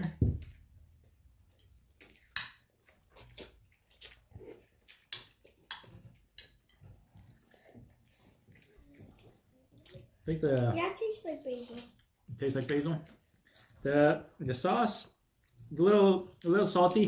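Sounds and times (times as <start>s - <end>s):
person chewing: 0.4s - 10.2s, 12.0s - 13.9s, 15.1s - 16.5s.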